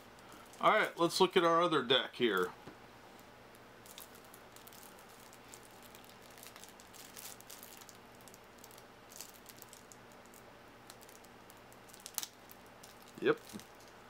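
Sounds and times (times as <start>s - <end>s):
plastic wrap crinkling: 3.8s - 14.0s.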